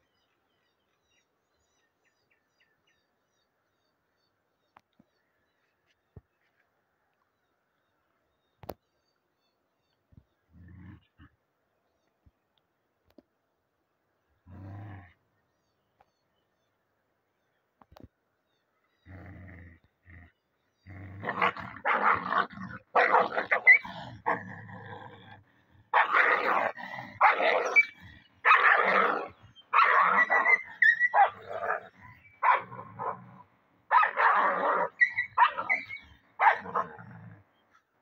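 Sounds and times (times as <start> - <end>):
dogs growling and snarling: 10.5 - 11.4, 14.4 - 15.2, 19.0 - 37.8
dogs yelping: 22.9 - 24.4, 25.9 - 33.2, 33.9 - 36.9.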